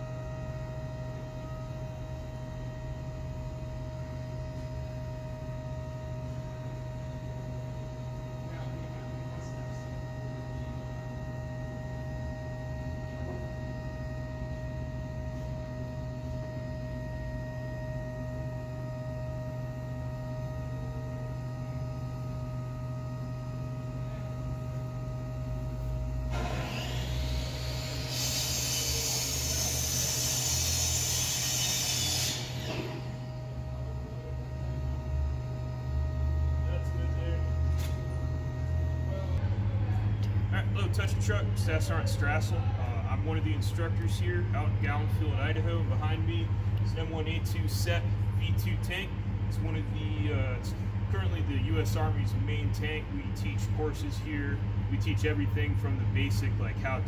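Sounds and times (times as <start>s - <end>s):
gas turbine humming whine: 0.0s - 57.0s
loud rushing hiss: 26.4s - 33.0s.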